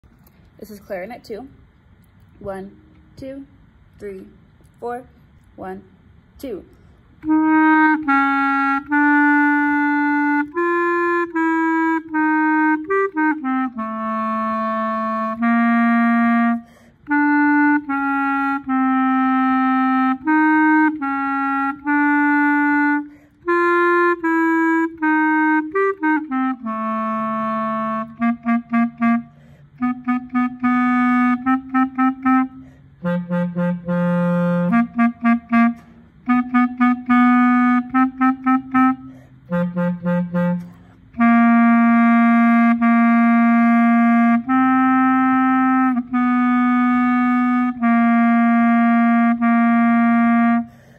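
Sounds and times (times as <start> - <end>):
clarinet melody: 7.2 - 50.9
player breathing: 16.6 - 17.0, 29.3 - 29.8, 39.0 - 39.5, 50.7 - 50.9.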